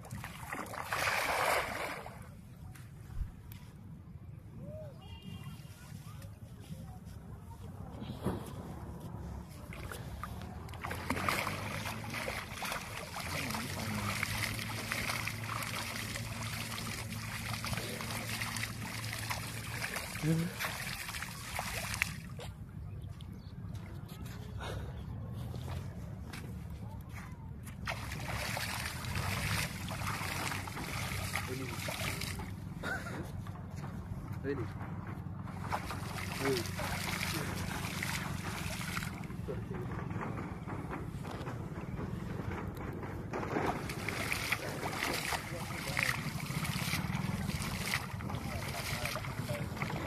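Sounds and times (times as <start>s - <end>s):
water splashing and churning: 0.0s - 2.7s, 8.7s - 22.9s, 27.7s - 50.0s
steady low rumble: 6.4s - 50.0s
low motor hum: 6.8s - 50.0s.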